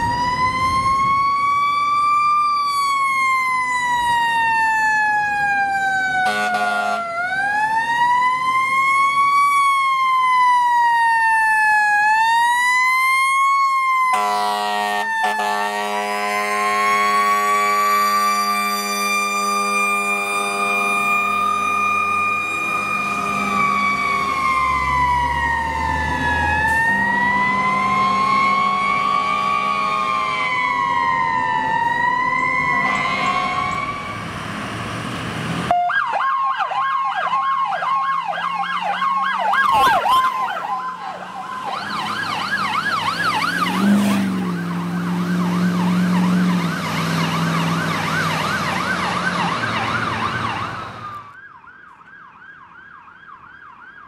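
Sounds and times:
siren yelping: 0.0s - 34.3s, 35.7s - 54.0s
siren wailing: 0.0s - 34.4s, 35.7s - 54.0s.

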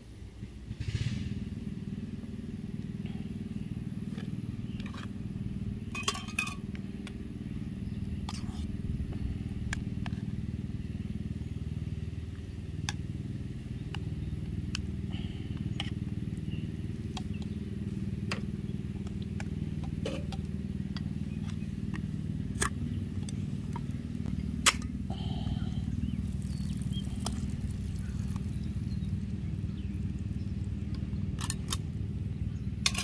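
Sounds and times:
low mechanical drone: 0.0s - 33.0s
spoon clinking in metal pot: 6.0s - 6.6s.

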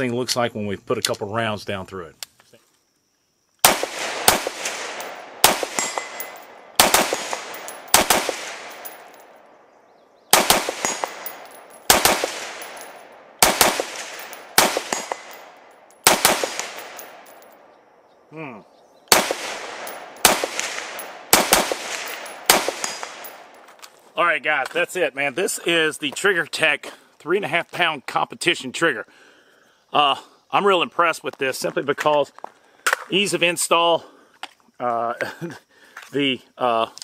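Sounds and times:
rifle shots with echo: 3.6s - 9.5s, 10.3s - 17.7s, 19.1s - 23.6s.

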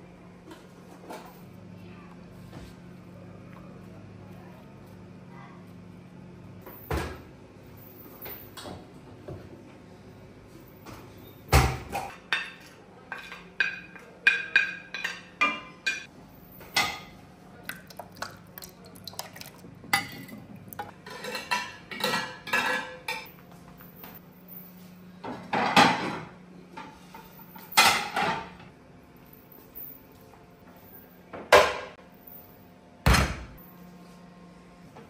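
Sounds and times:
dishes and utensils clinking: 11.8s - 23.4s.

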